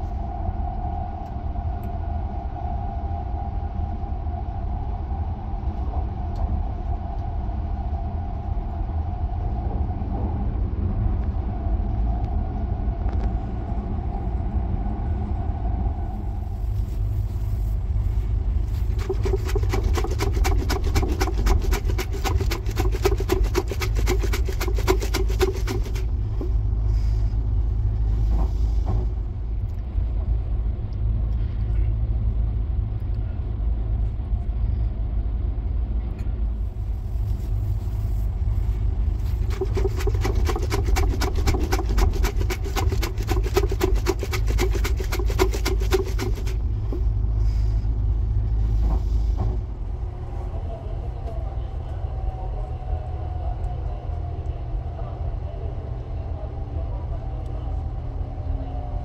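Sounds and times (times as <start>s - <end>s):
train running rumble: 0.0s - 59.0s
noodles rattling in shaken cup: 18.6s - 26.6s, 39.2s - 47.0s.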